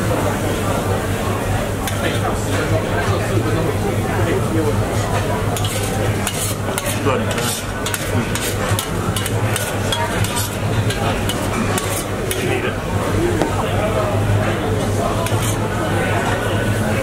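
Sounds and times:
cutlery scraping steel plates: 5.6s - 12.6s, 15.2s - 15.6s.

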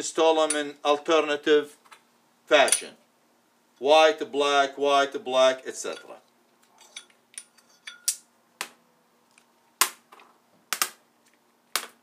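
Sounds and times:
magnets clacking on sheet metal: 5.8s - 8.3s.

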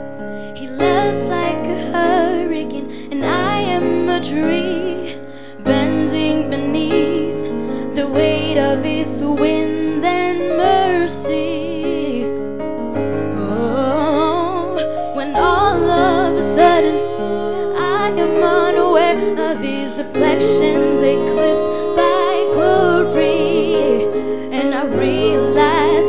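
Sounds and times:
women singing gospel with vibrato: 0.6s - 12.3s, 13.4s - 26.0s
sustained keyboard chords: 12.5s - 26.0s.

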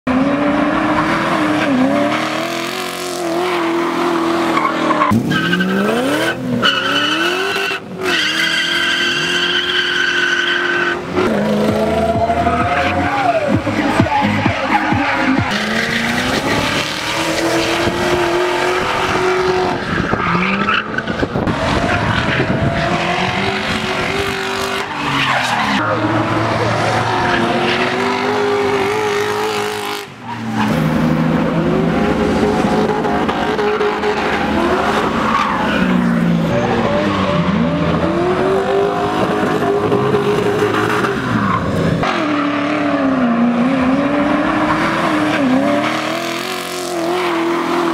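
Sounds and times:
car engine revving: 0.0s - 47.9s
tyres squealing: 3.4s - 21.0s.

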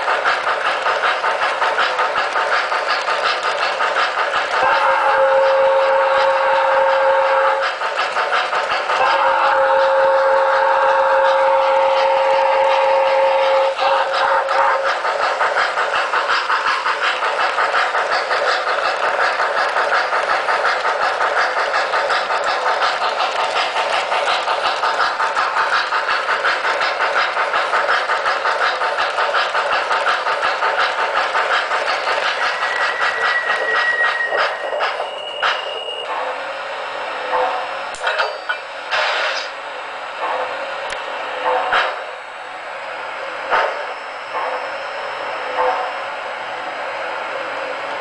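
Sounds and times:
wheels clattering on track: 0.0s - 4.9s, 13.6s - 36.0s
model steam locomotive chuffing: 0.0s - 48.0s.

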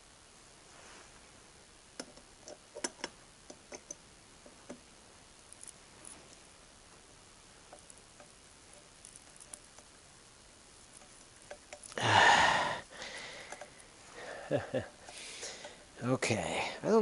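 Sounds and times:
small metal parts clicking: 2.0s - 4.0s, 7.7s - 9.9s, 10.8s - 12.0s, 13.4s - 13.9s.

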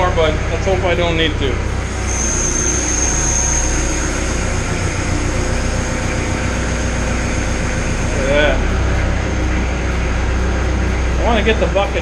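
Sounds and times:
thin high whine: 0.0s - 12.0s
tractor diesel engine running: 0.0s - 12.0s.

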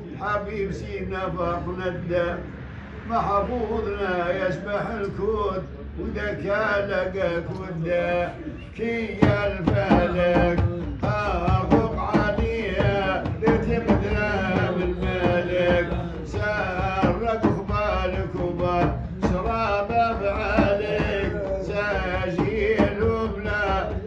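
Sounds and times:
steady drum beat: 8.9s - 24.0s.

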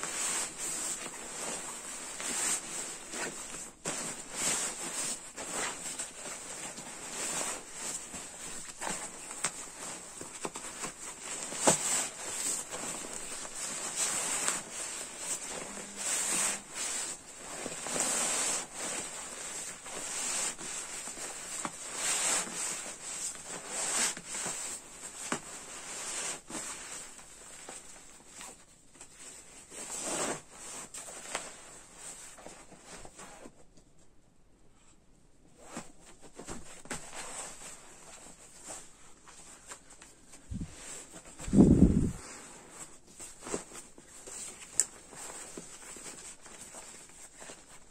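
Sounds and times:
sleeping bag nylon rustling: 0.0s - 27.8s, 35.6s - 47.9s.

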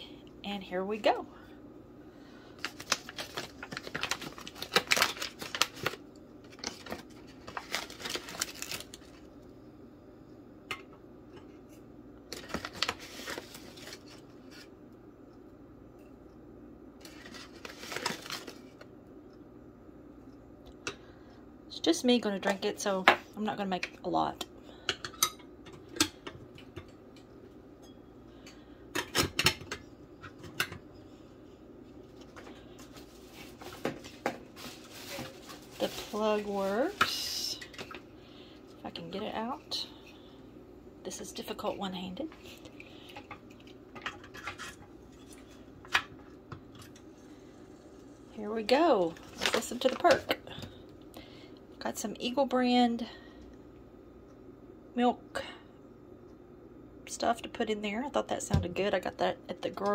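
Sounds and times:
foil bag crinkling: 2.6s - 9.3s, 12.3s - 14.7s, 17.0s - 18.9s, 32.4s - 37.9s.

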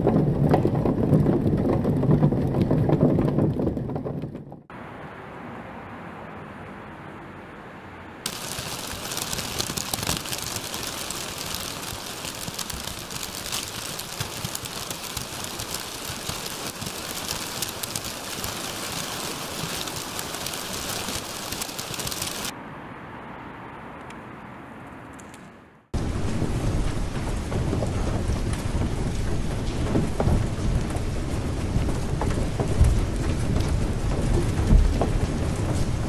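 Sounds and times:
paper bags crinkling and rustling: 8.3s - 22.5s.

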